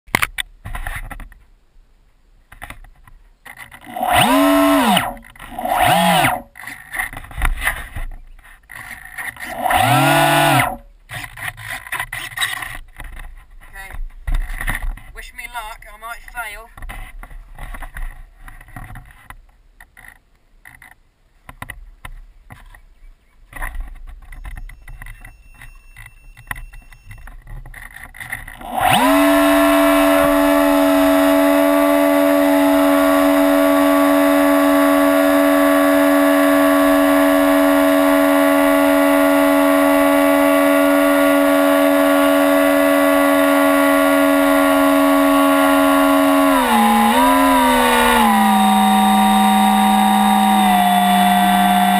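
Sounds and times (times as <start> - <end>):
model airplane motor whine: 3.7 - 6.7, 8.9 - 10.9, 28.2 - 51.9.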